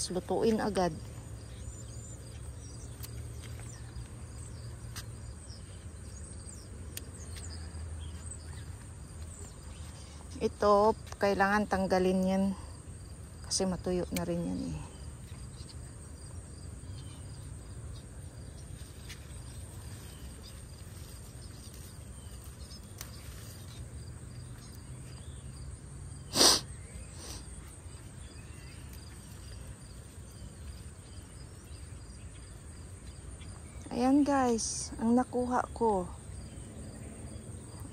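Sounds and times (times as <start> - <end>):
insects chirring: 0.0 - 37.9
pruning shears snipping: 14.1 - 14.4, 22.4 - 23.9.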